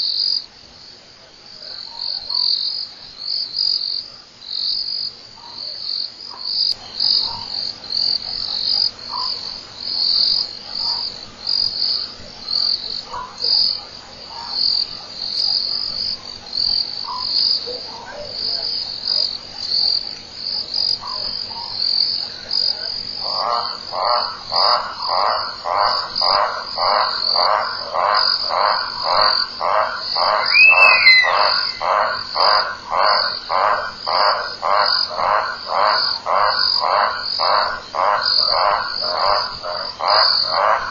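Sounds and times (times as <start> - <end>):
high pulsing insect trill: 18.4 - 40.9.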